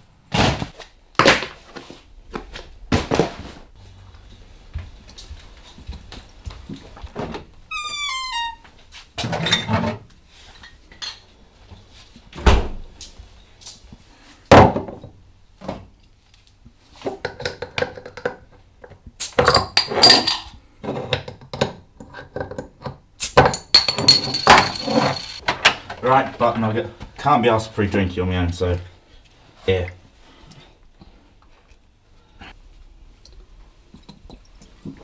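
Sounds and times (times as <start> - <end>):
glass bottles thunking on worktop: 19.4 - 20.5, 23.4 - 25.4
glass bottles knocking and clinking: 19.4 - 20.6, 23.4 - 25.4.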